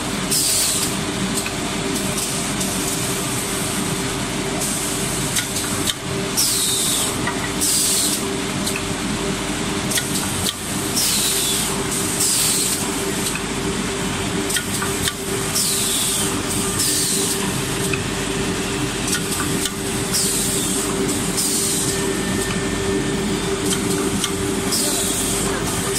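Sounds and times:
machine motor hum: 10.5 - 25.9
pneumatic air-release hisses: 11.0 - 12.8, 15.5 - 17.4, 20.1 - 20.8, 21.4 - 21.9.

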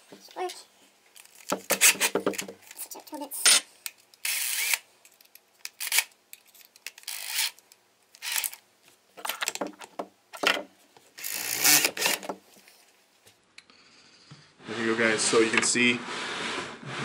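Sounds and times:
drill chuck rasping and clicking: 4.2 - 4.8, 5.6 - 8.6, 11.2 - 12.3
drill boring through plastic: 4.3 - 4.8, 11.2 - 12.3.

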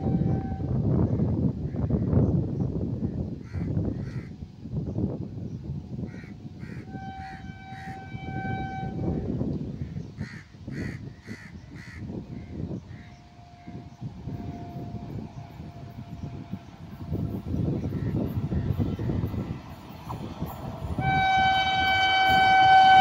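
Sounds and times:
distant train horn: 0.0 - 1.2, 6.6 - 9.6, 11.8 - 23.0.

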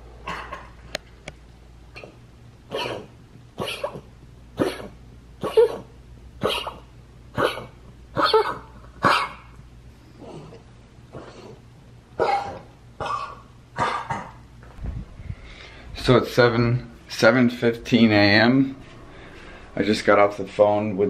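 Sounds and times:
dog coughing and wheezing: 0.2 - 0.8, 1.9 - 9.6, 10.2 - 14.5.

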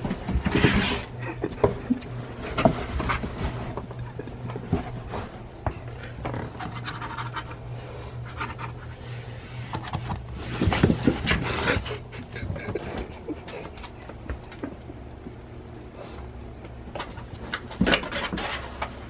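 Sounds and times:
cardboard box scraping on floor: 0.3 - 1.1, 2.2 - 3.9.

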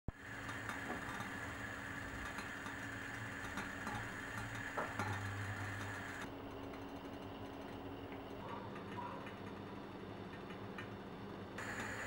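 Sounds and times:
water heating hum and hiss: 11.6 - 12.0.

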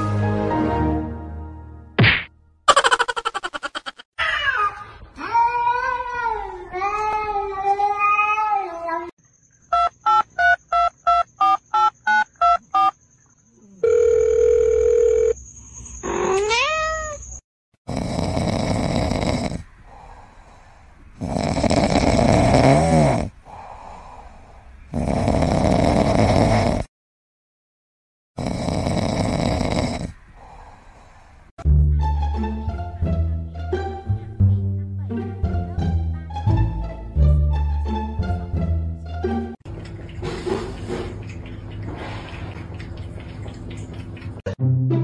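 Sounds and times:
telephone-like beeps: 9.7 - 13.0
kitten snoring: 17.9 - 19.7, 21.2 - 23.6, 24.9 - 26.9, 28.4 - 30.7.

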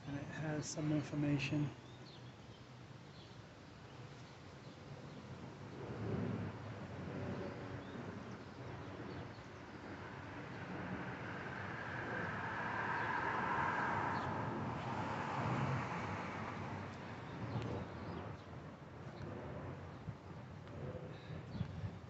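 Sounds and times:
vehicle passing by: 9.8 - 18.4.

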